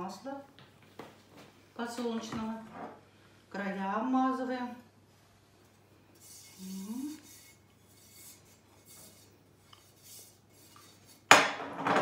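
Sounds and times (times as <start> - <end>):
hand rubbing oil in pan: 6.2 - 11.3.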